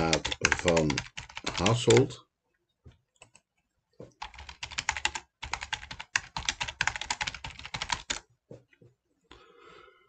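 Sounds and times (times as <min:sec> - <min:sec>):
fast typing on keyboard: 0:00.0 - 0:02.2, 0:04.1 - 0:08.2.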